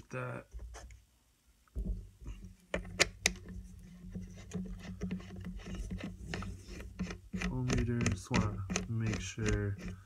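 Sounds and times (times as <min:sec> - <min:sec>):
light scraping and ticking: 0:02.3 - 0:10.0.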